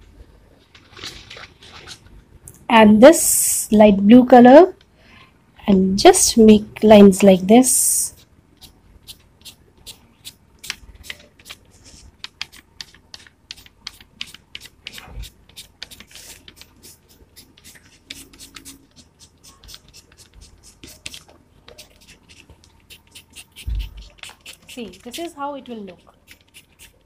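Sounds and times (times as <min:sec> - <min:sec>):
crayon scratching on paper: 0:07.7 - 0:27.0.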